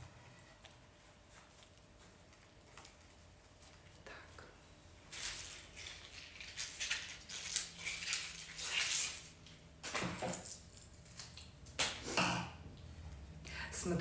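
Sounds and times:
rustling and crinkling of stems: 0.4s - 11.6s.

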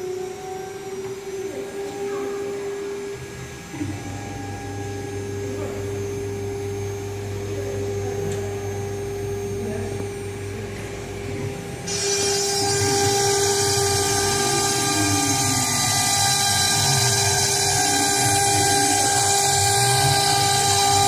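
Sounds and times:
router spindle whine: 0.0s - 21.0s
router bit cutting rasp: 11.9s - 21.0s.

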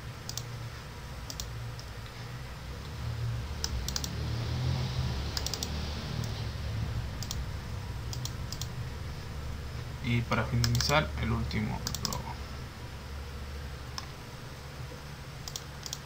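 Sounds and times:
steady low hum: 0.0s - 16.0s
computer mouse clicking: 0.2s - 0.5s, 1.2s - 2.0s, 3.6s - 4.2s, 5.3s - 6.4s, 7.2s - 7.4s, 8.1s - 8.8s, 10.6s - 11.0s, 11.8s - 12.3s, 15.4s - 16.0s.

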